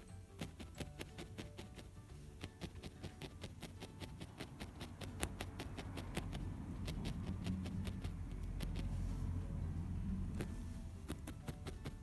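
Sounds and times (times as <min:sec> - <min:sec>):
felting needle tapping: 0:00.0 - 0:09.0, 0:10.3 - 0:12.0
low rumble: 0:06.3 - 0:11.2.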